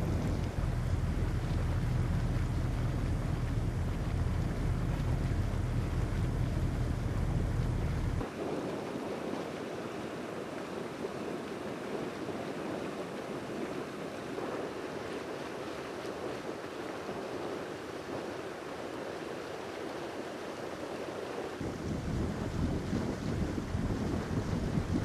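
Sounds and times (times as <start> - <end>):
deep rumble: 0.0 - 8.3, 21.6 - 25.0
sea water rushing: 0.0 - 25.0
wind: 0.0 - 25.0.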